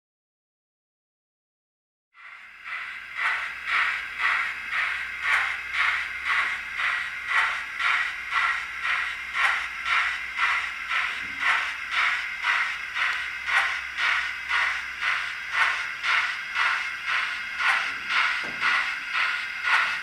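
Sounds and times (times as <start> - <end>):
model steam locomotive chuffing: 2.2 - 20.0.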